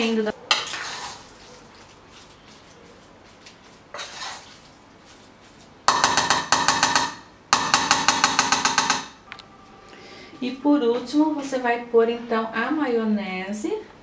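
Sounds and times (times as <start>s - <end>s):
spoon scraping a pot: 0.5s - 7.1s
metal spoon knocking on a pot: 5.9s - 9.2s.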